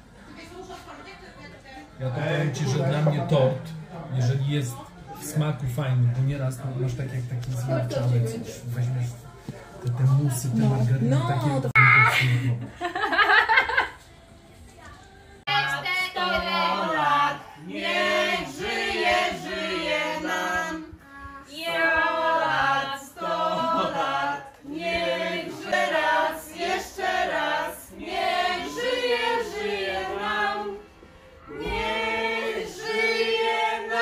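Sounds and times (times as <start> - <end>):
group singing a celebration song: 15.4 - 34.0.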